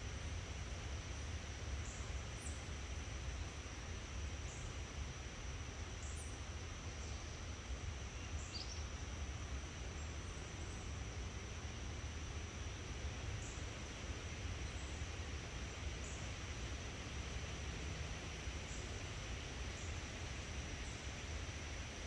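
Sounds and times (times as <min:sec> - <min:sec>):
insect drone: 0:00.0 - 0:22.0.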